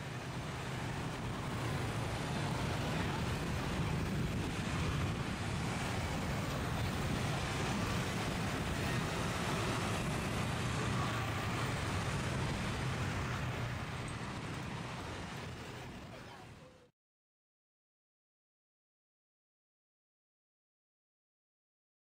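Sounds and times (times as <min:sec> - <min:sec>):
road traffic rumble: 0:00.0 - 0:16.9.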